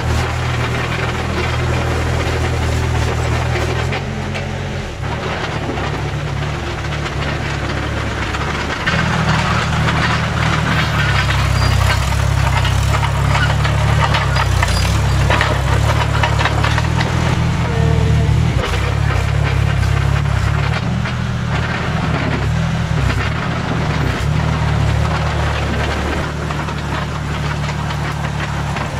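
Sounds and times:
dozer engine under load: 0.0 - 28.9
steel tracks clattering: 0.0 - 28.9.

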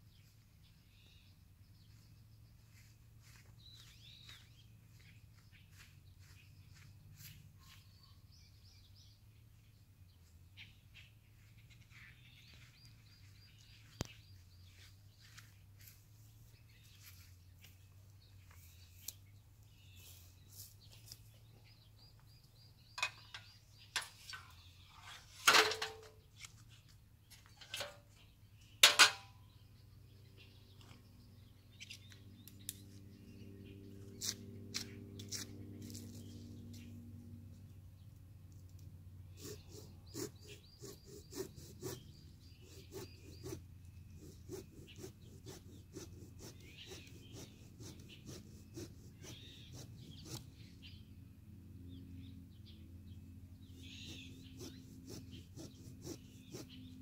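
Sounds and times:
birds chirping: 0.0 - 57.0
metallic clanks of stepladder: 25.4 - 26.2, 28.8 - 29.4.

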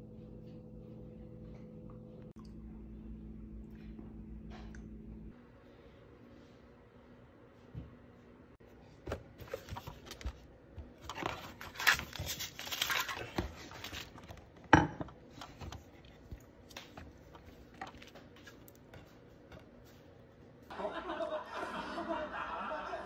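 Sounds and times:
foil sachets crinkling: 11.1 - 14.4.

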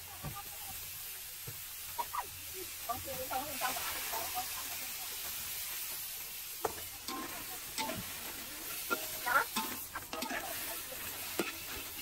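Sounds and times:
food sizzling in a pan: 0.0 - 12.0
utensil scraping and clinking pan: 6.7 - 12.0.

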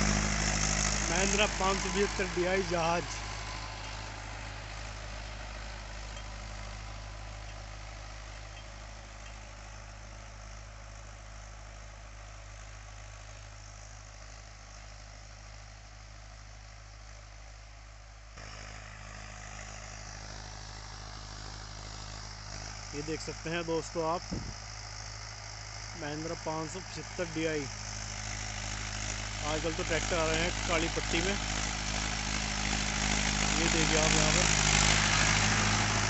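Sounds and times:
tractor diesel engine under load: 0.0 - 10.4, 18.4 - 36.0.

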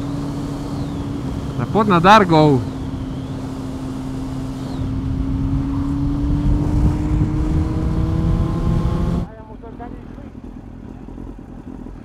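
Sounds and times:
motorcycle engine pulling: 0.0 - 12.0
wind noise on microphone: 4.8 - 9.3.

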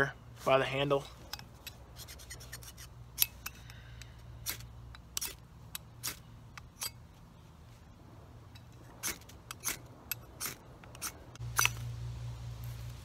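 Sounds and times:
fire-starter rod scraping metal: 8.5 - 11.9.

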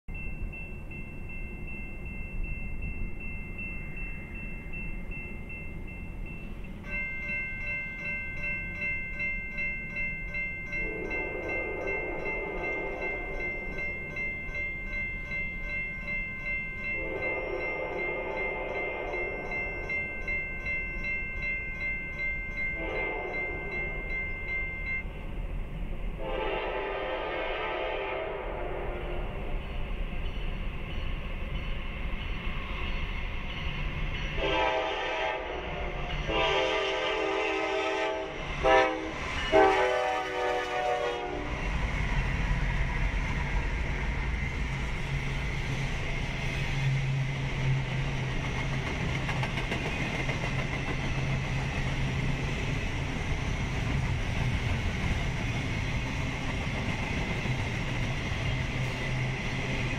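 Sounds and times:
crossing warning bell ringing: 0.1 - 26.7, 28.7 - 59.9
low train rumble: 0.1 - 59.9
locomotive air horn blasts: 10.8 - 13.4, 17.0 - 19.2, 22.8 - 23.6, 26.2 - 29.4, 34.4 - 41.6.

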